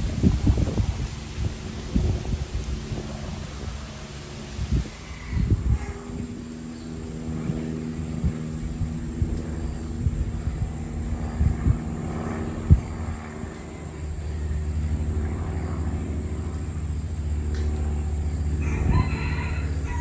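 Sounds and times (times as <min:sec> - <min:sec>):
wind buffeting microphone: 0:00.0 - 0:20.0
rooster crowing: 0:18.3 - 0:20.0.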